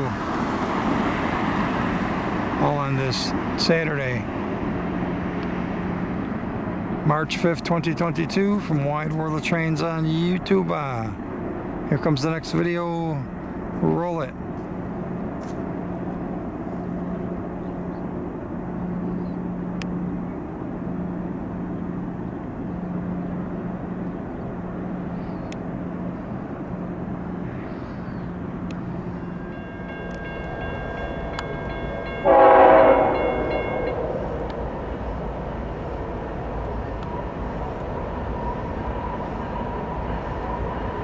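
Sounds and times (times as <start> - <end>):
freight train rumbling: 0.0 - 41.0
locomotive air horn blast: 32.2 - 33.9.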